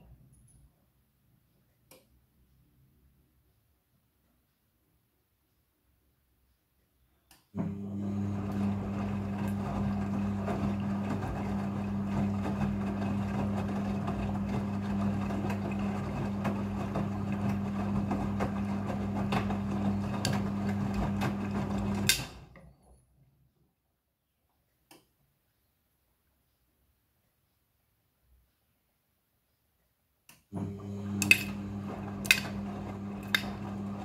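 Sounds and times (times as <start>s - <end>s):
washing machine motor hum: 7.6s - 22.9s, 30.5s - 34.0s.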